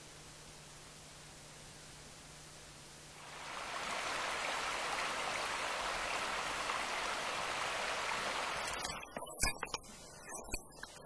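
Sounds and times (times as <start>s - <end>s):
running water rushing: 3.2s - 11.0s.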